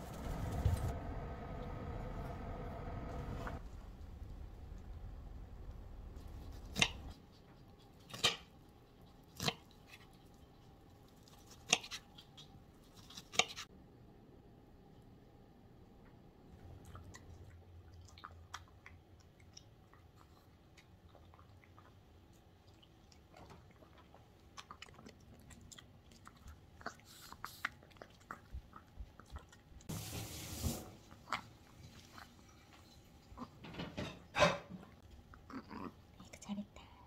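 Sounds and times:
rustling scrape: 0:00.0 - 0:01.0
small dog chewing food: 0:16.6 - 0:29.9.

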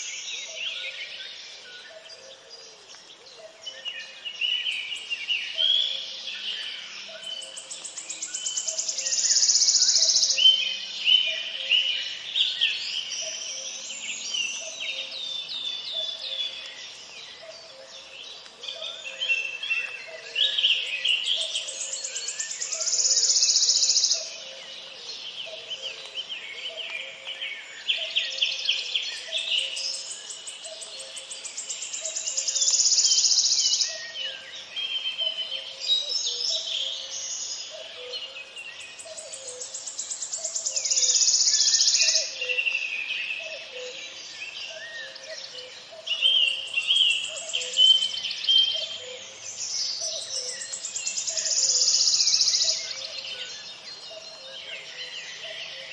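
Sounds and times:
birds chirping and singing: 0:00.0 - 0:55.9.

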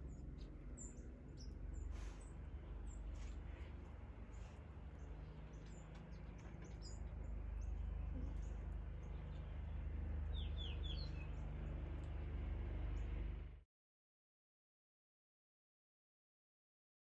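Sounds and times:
songbirds chirping: 0:00.0 - 0:13.6.

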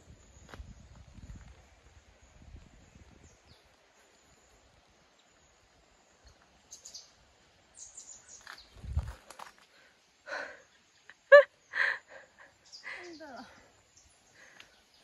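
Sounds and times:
wind rumble on microphone: 0:00.0 - 0:03.8, 0:08.5 - 0:09.4
quiet hiss: 0:00.0 - 0:15.0.

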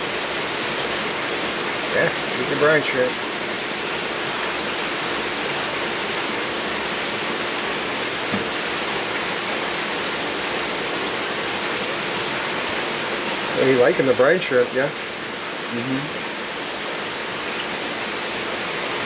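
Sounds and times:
aquarium water rushing: 0:00.0 - 0:19.0.

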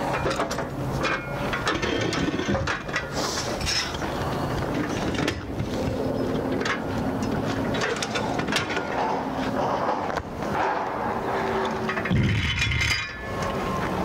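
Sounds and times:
metal railing clanks and clicks: 0:00.0 - 0:13.7.

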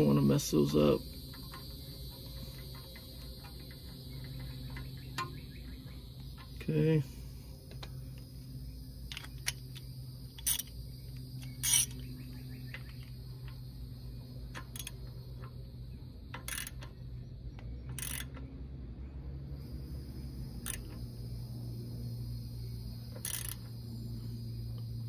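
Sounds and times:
hand ratchet clicking and clinking: 0:00.0 - 0:06.7, 0:09.1 - 0:10.8, 0:11.4 - 0:12.0, 0:14.5 - 0:15.6, 0:16.3 - 0:17.0, 0:17.9 - 0:18.5, 0:20.6 - 0:21.1, 0:23.1 - 0:23.8.

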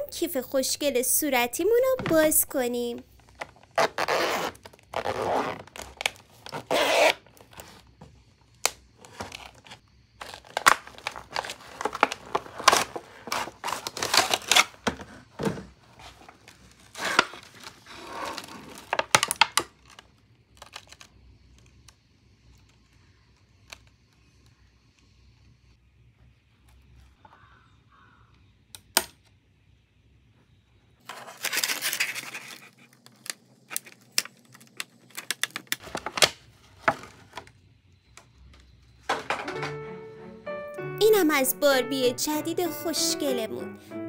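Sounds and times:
plastic packaging crinkling and tearing: 0:03.2 - 0:07.8, 0:08.6 - 0:15.1, 0:15.9 - 0:21.8, 0:31.0 - 0:37.5.

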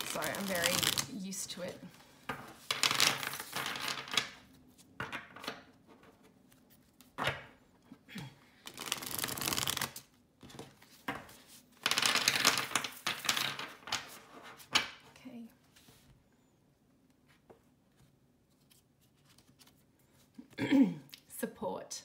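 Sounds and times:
cards being riffle-shuffled: 0:00.0 - 0:01.2, 0:02.3 - 0:07.4, 0:08.6 - 0:14.8.

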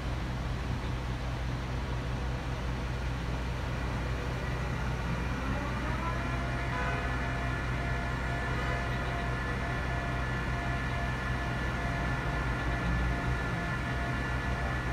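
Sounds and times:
heavy machinery droning: 0:00.0 - 0:14.9
rising machine whine: 0:03.8 - 0:14.9.

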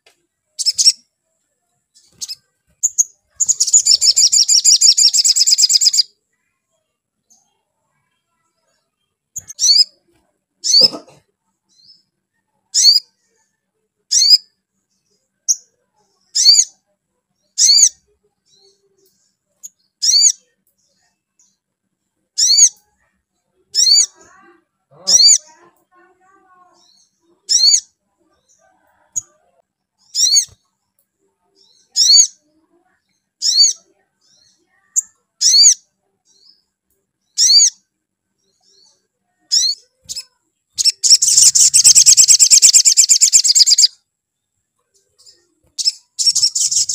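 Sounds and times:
bird fast twittering: 0:02.0 - 0:06.0, 0:39.5 - 0:43.9, 0:45.8 - 0:46.9
sunbird high calls: 0:39.5 - 0:44.0.

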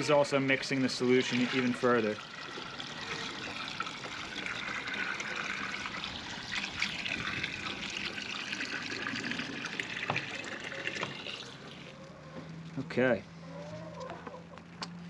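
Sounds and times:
water pouring into a plastic jug: 0:00.0 - 0:12.0.

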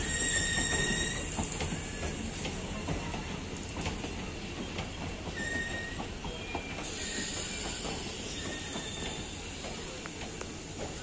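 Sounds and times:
high-pitched wheel squeals: 0:00.0 - 0:02.0, 0:05.4 - 0:09.4
train wheels rumbling and clicking: 0:00.0 - 0:11.0.

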